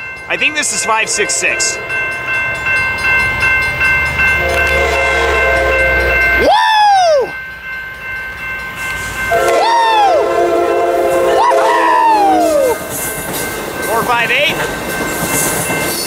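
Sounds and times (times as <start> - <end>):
train horn chord: 4.3 - 6.3, 9.3 - 12.0.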